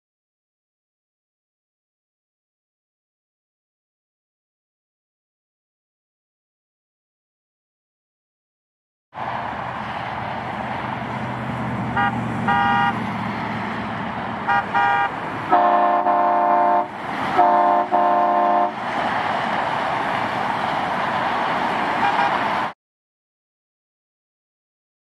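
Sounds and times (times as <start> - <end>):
steady outdoor hiss: 9.2 - 22.7
air horn blasts: 11.9 - 13.0, 14.5 - 18.8, 22.0 - 22.4.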